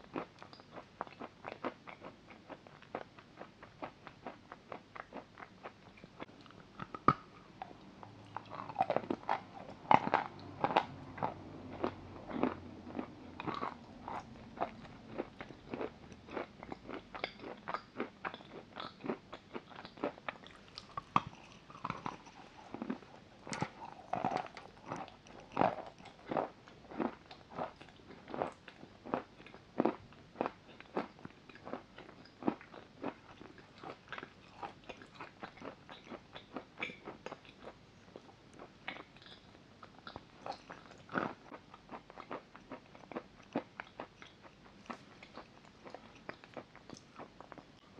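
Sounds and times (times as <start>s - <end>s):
chewing with sharp crunches: 0.0s - 47.9s.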